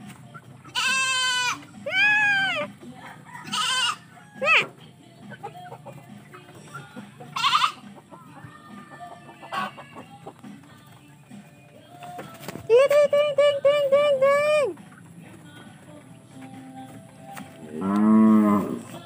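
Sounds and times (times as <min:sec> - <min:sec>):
goat bleating: 0:00.6 - 0:02.7, 0:03.4 - 0:04.7, 0:07.2 - 0:08.0, 0:08.9 - 0:10.2.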